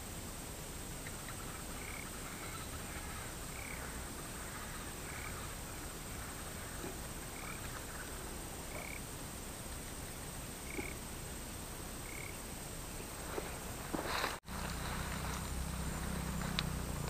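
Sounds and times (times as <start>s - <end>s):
outdoor background hiss: 0.0s - 17.0s
short animal calls: 10.6s - 11.1s.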